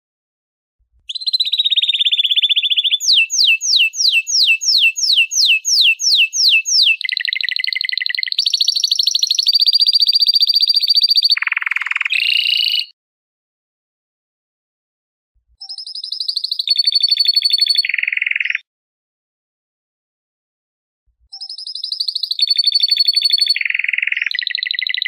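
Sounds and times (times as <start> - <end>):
canary singing trills and whistles: 1.1 - 13.0, 15.6 - 18.6, 21.3 - 25.0.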